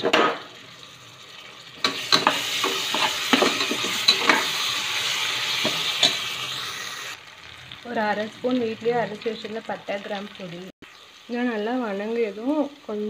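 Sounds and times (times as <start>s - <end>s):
food sizzling in hot oil: 0.0s - 13.0s
metal spatula scraping and tapping: 1.8s - 4.5s.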